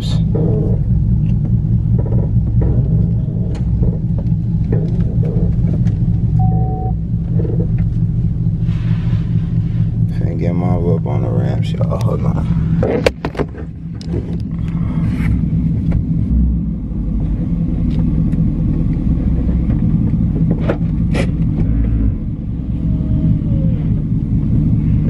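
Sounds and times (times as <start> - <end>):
car engine running at low speed: 0.0 - 25.0
sharp clicks and knocks: 0.2 - 6.5, 12.8 - 14.8.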